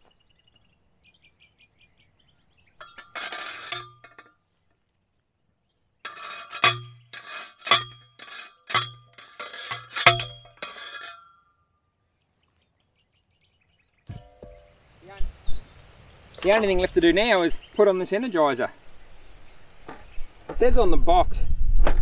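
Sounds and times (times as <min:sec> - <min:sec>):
post driver clanking on steel post: 0:02.8 - 0:04.4, 0:06.0 - 0:11.6, 0:14.1 - 0:14.9
post driver rattling clatter: 0:02.8 - 0:04.4, 0:06.1 - 0:11.3.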